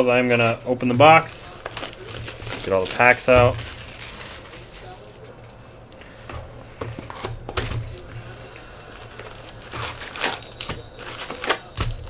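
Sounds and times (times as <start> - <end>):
foil card packs crinkling: 0.0 - 6.0, 7.0 - 12.0.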